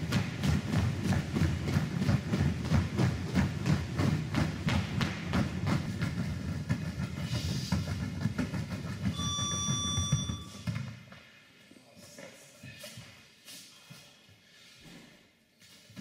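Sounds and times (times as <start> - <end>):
battle ropes slapping floor mats: 0.0 - 11.4, 14.8 - 16.0
high steady beep: 9.1 - 10.7.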